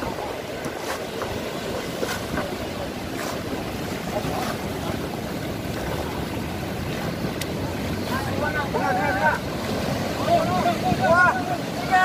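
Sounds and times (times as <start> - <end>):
surf washing over shallows: 0.0 - 12.0
wind noise on microphone: 0.0 - 12.0
faint sharp clicks: 7.4 - 7.6.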